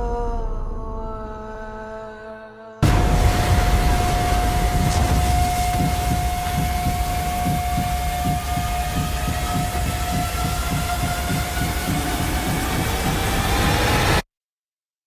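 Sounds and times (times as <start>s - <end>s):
deep pulsing rumble: 2.8s - 14.2s
high held tone: 3.0s - 14.0s.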